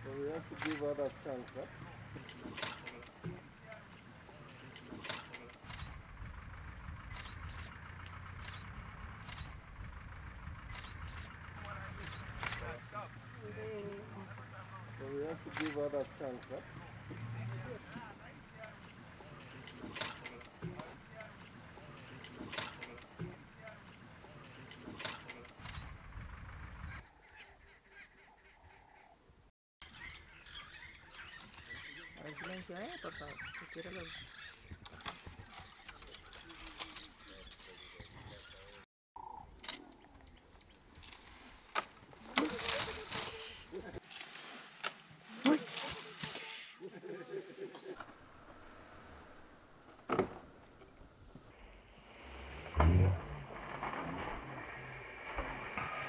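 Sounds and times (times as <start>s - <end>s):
vehicle engine idling: 0.0s - 28.8s
sharp clicks: 0.6s - 1.2s, 7.1s - 9.6s, 10.6s - 12.8s, 15.5s - 16.2s
low rumble: 5.6s - 13.4s, 25.6s - 27.0s, 51.6s - 55.8s
faint bird call: 26.8s - 29.2s.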